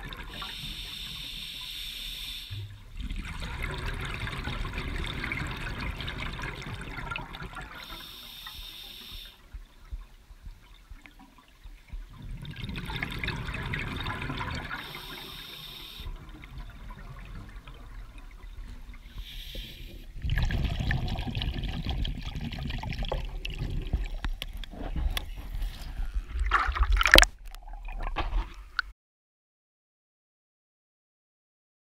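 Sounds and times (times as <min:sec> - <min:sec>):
water splashing and sloshing: 0:02.5 - 0:28.9
muffled underwater noise: 0:13.0 - 0:20.2.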